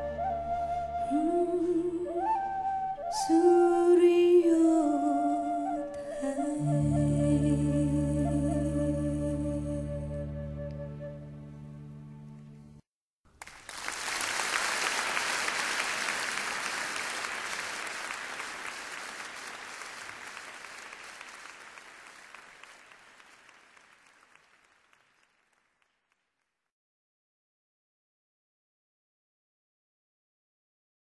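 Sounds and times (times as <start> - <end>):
audience applauding: 13.3 - 26.4.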